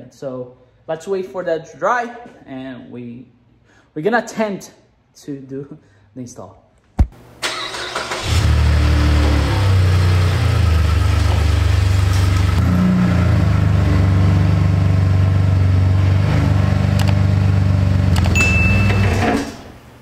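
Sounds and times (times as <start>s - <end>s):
pickup truck engine reversing: 7.4s - 19.5s.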